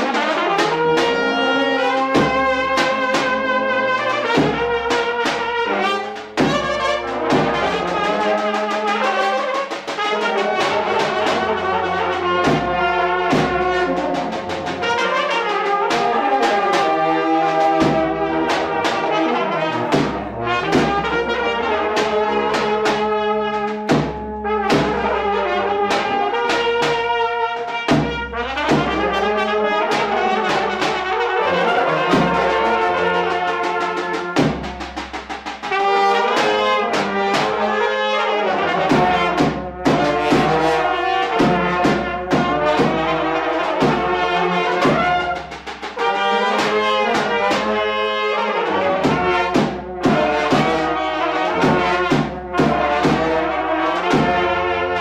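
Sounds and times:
brass horns playing melody: 0.0s - 55.0s
steady drum beat: 0.0s - 55.0s.

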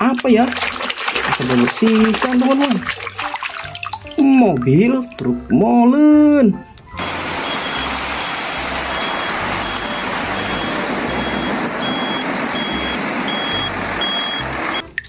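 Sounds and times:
water running and splashing: 0.0s - 5.5s
high electronic beeps: 7.3s - 14.9s.

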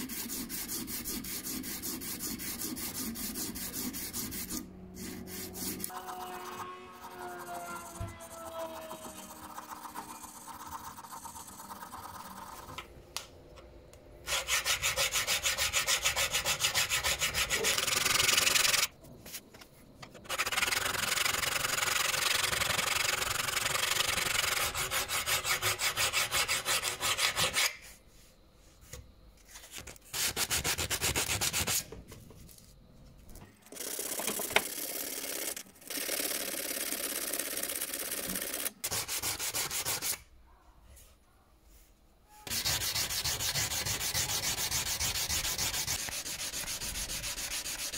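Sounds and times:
file scraping steel blade: 0.0s - 11.1s, 14.2s - 18.9s, 20.3s - 28.0s, 42.4s - 47.9s.

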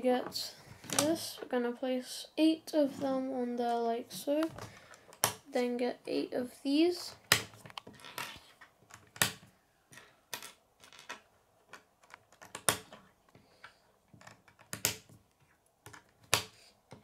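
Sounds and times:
plastic toy pieces clicking together: 8.9s - 13.0s.

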